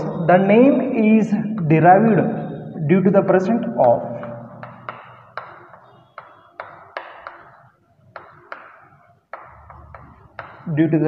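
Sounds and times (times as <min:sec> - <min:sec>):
chalk tapping and scratching on blackboard: 0:03.8 - 0:10.7.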